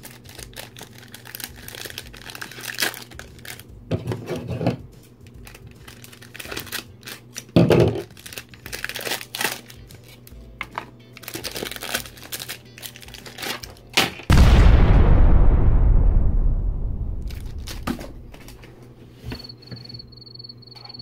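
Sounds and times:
sticker packet crinkling and tearing: 0.0 - 3.7, 5.2 - 10.4, 11.1 - 14.3, 17.2 - 18.8.

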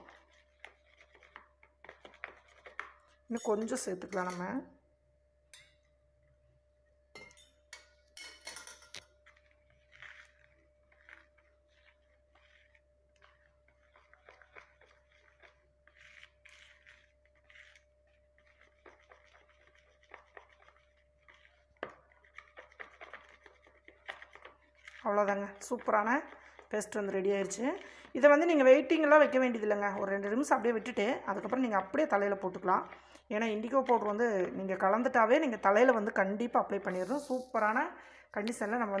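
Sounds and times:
spoon scraping plastic bowl: 0.0 - 4.5, 8.4 - 37.8
spoon clinks: 7.2 - 9.0.

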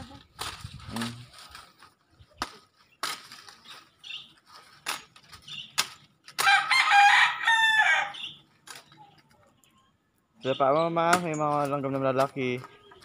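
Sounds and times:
machete chopping branch: 2.4 - 3.6, 5.7 - 6.8, 11.1 - 12.4
rooster crowing: 6.4 - 8.2.

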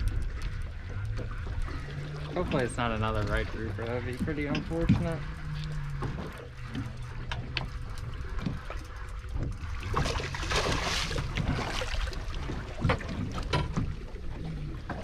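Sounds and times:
low rumble of wind and water: 0.0 - 15.0
fish splashing at water surface: 9.8 - 12.9.

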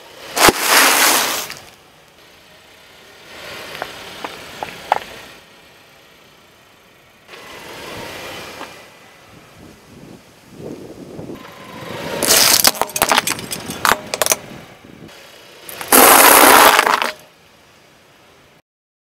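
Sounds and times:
dry pasta crunching under tyre: 0.4 - 1.8, 12.2 - 14.4, 15.7 - 17.2
tyre crushing small objects: 0.4 - 1.8, 12.2 - 14.4, 15.7 - 17.2.

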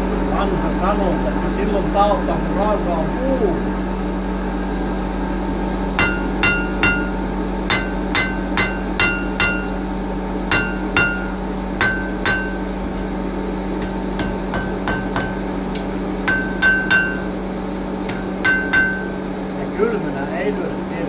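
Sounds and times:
steady low hum: 0.0 - 21.0
hammer striking steel on anvil: 6.0 - 9.8, 10.5 - 12.7, 13.8 - 17.3, 18.1 - 19.2.

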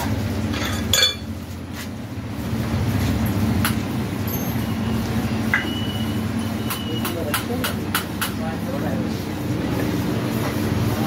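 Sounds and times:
metal parts clinking: 0.5 - 1.2.

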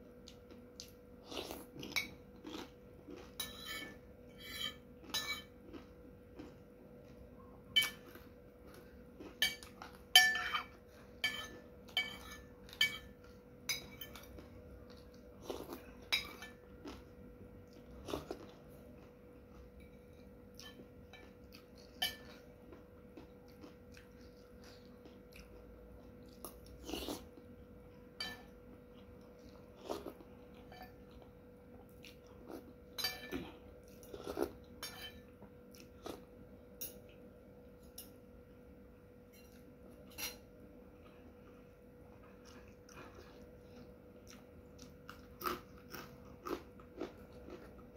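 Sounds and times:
soft chewing: 0.0 - 38.2, 39.3 - 47.9
cutlery clinking on ceramic bowl: 3.4 - 5.6, 7.8 - 8.2, 9.4 - 14.3, 16.1 - 16.6, 19.8 - 22.4, 28.2 - 28.6, 30.6 - 31.2, 32.9 - 33.4, 34.8 - 35.4, 39.3 - 40.5.

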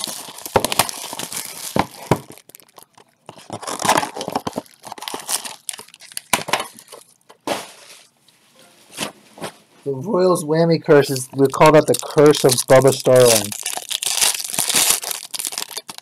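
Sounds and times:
plastic shrink-wrap tearing: 0.0 - 7.2, 11.0 - 16.0
foil pack crinkling: 0.0 - 8.1, 11.0 - 16.0.

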